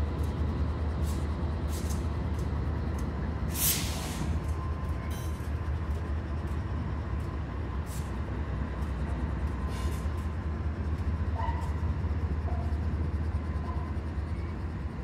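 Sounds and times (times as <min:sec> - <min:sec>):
locomotive rumbling: 0:00.0 - 0:15.0
air hiss: 0:03.5 - 0:04.3.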